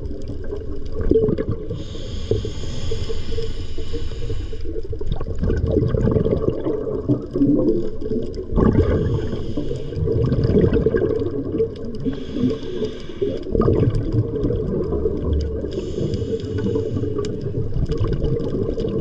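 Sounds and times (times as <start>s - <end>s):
underwater bubbling and gurgling: 0.0s - 19.0s
diver breathing hiss: 1.7s - 4.9s, 8.9s - 10.3s, 12.0s - 13.6s, 15.6s - 17.5s.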